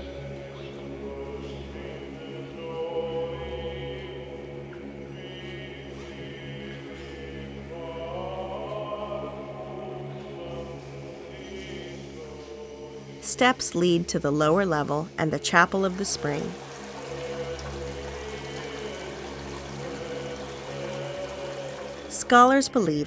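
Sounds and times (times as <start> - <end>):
choir chanting: 0.0 - 13.2, 15.2 - 23.0
low held drone: 15.6 - 22.6.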